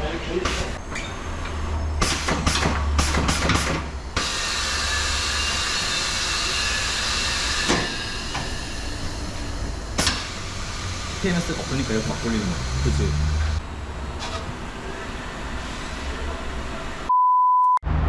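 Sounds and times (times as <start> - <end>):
tool clicks and clacks: 2.0 - 4.3
compressed air hiss: 4.2 - 13.6.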